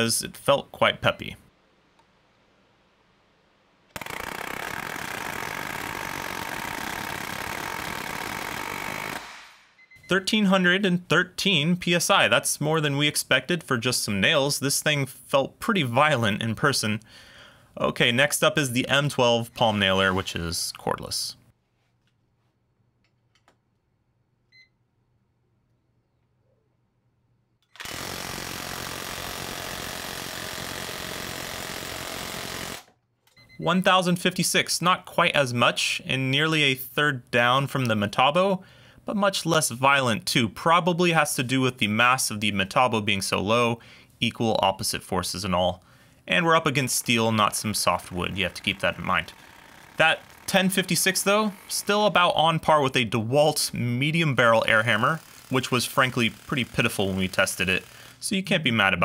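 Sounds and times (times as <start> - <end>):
palm nailer hammering on steel: 4.0 - 9.5.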